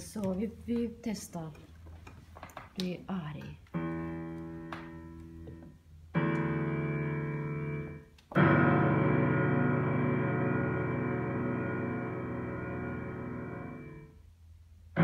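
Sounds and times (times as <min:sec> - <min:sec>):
piano clusters slammed: 0:06.2 - 0:14.1.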